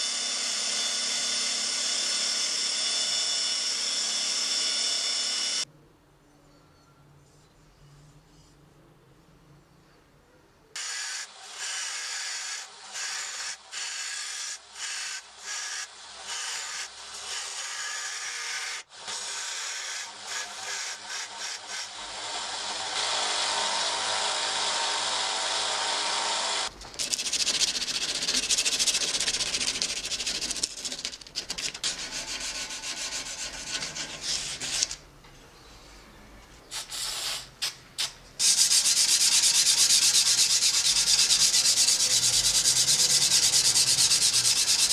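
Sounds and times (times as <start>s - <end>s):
belt sander on steel blade: 38.4s - 44.9s.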